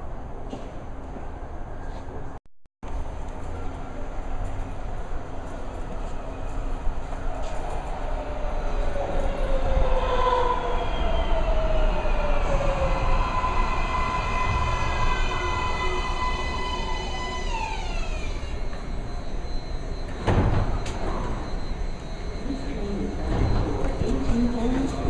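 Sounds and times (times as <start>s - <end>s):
train drive whining tones: 2.9s - 25.0s
train braking: 3.1s - 25.0s.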